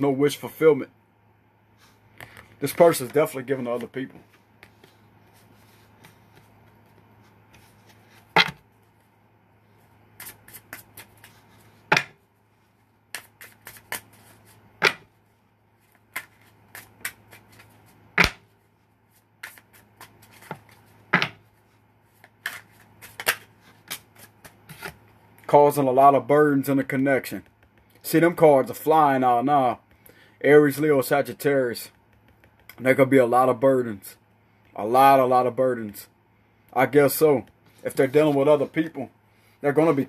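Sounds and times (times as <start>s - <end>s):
cards shuffling: 10.1s - 12.1s, 13.1s - 15.1s, 15.8s - 18.5s, 19.1s - 21.4s, 22.1s - 25.0s
deck of cards snapping: 16.1s - 18.4s.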